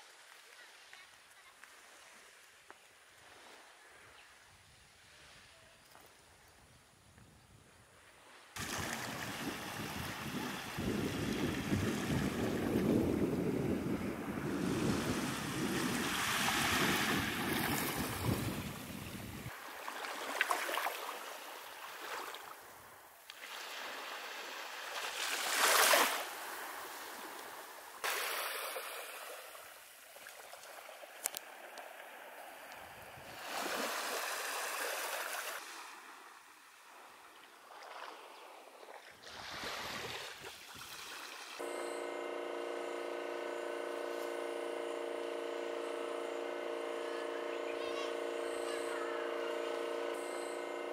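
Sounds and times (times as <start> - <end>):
small waves washing on beach: 8.1 - 41.7
wind rumbling on microphone: 8.6 - 19.5
steady multi-tone hum: 8.6 - 19.7, 41.6 - 50.9.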